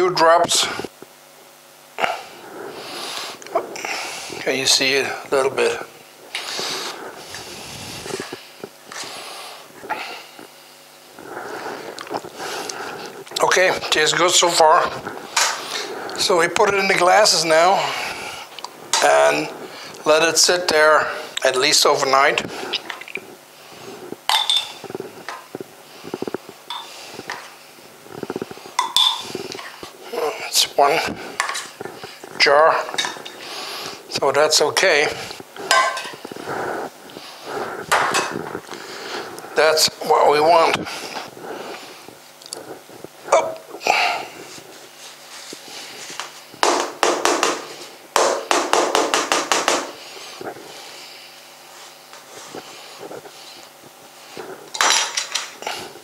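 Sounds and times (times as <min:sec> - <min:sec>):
spoon clinking on glass and metal: 0:24.3 - 0:24.8, 0:28.8 - 0:29.2.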